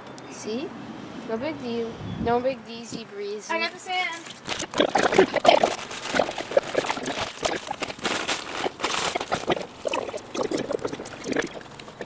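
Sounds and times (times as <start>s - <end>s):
hands sloshing wet plaster: 4.3s - 12.0s
powder poured into water: 4.6s - 12.0s.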